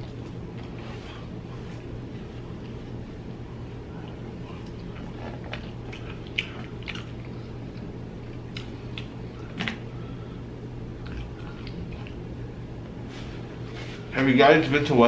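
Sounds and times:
chewing and mouth smacks: 0.0 - 1.0, 3.9 - 9.6, 11.0 - 12.3
faint low hum: 0.0 - 15.0.

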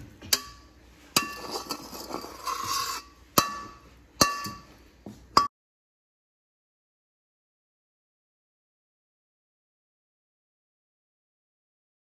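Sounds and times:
spatula scraping: 0.3 - 4.5
metal spatula clinking on wok: 3.4 - 4.7.

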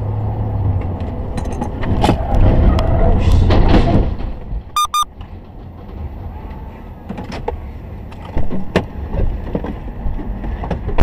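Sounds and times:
vehicle engine rumble: 0.0 - 11.0
high electronic beeps: 4.8 - 5.1.

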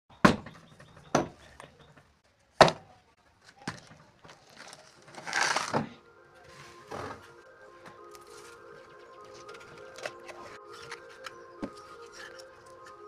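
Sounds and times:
plastic tub scraping: 4.4 - 6.0.

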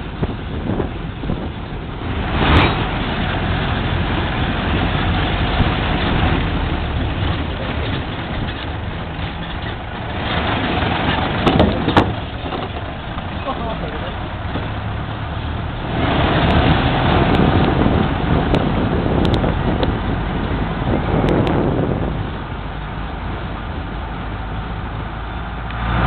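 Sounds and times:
wind noise: 0.0 - 13.5, 14.1 - 26.0
truck engine running: 0.0 - 26.0
tyres rumbling on cobblestones: 0.0 - 26.0
truck jolting knocks: 0.2 - 14.9.

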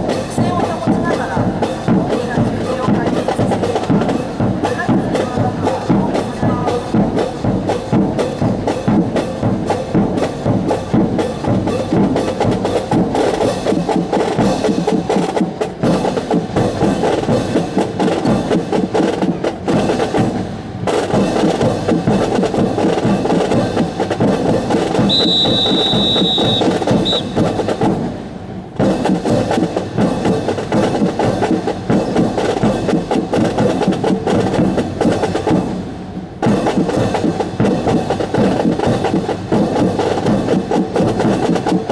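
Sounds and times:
marching drum cadence: 0.0 - 41.9
high whistle tone: 25.0 - 27.4
short pip: 25.1 - 27.4.

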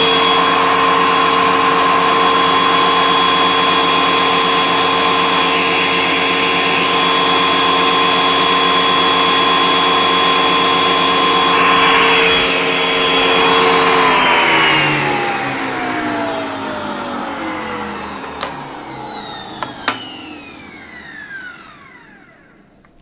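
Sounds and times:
planer motor whining: 0.0 - 23.0.

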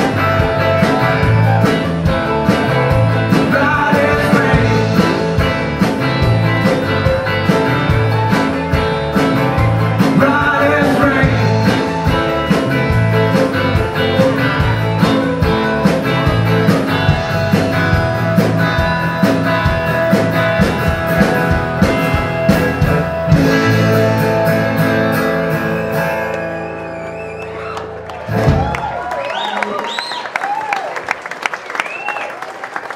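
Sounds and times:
drums keeping a steady beat: 0.0 - 26.2
live rock band playing: 0.0 - 30.0.

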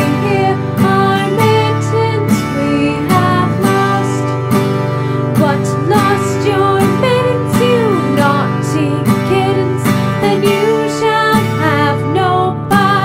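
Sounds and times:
strummed acoustic guitar: 0.0 - 13.0
woman singing: 0.0 - 13.0.

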